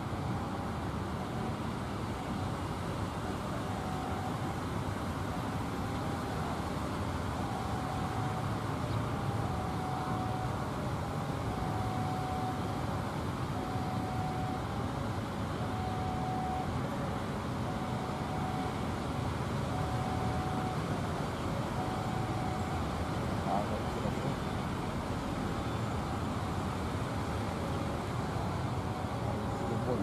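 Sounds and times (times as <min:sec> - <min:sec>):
level crossing alarm tone: 0:07.3 - 0:16.9, 0:17.6 - 0:26.4.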